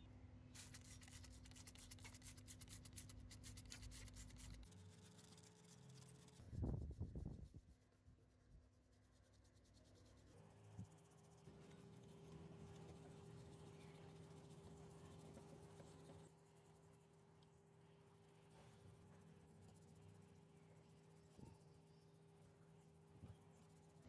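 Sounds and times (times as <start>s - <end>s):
toothbrush scrubbing: 0.6s - 6.5s.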